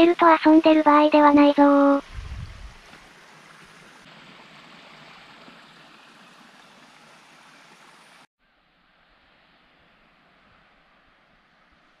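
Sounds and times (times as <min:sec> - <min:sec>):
running water rushing: 0:00.4 - 0:08.3.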